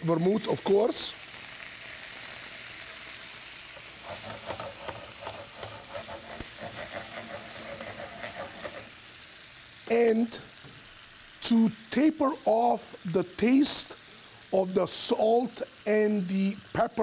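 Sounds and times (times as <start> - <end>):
food sizzling in oil: 0.0 - 17.0
pan scraping rattles: 4.0 - 8.9.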